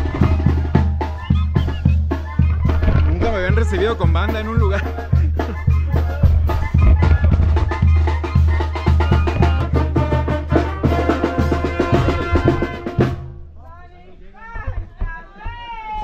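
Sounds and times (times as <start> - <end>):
banda music with tuba and brass: 0.0 - 13.5.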